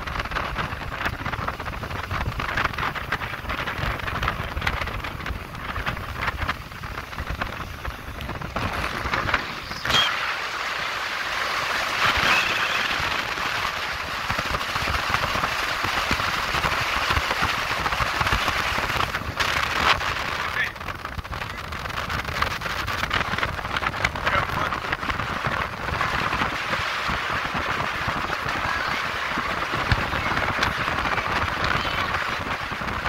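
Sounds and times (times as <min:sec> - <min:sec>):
motorboat rumble: 0:00.0 - 0:33.0
wind on microphone: 0:00.0 - 0:33.0
rushing water hiss: 0:00.1 - 0:20.8.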